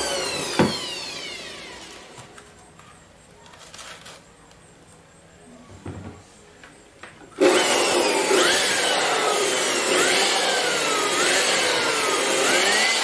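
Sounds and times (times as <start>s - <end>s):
electric dust blower whining: 0.0s - 2.4s, 7.4s - 13.0s.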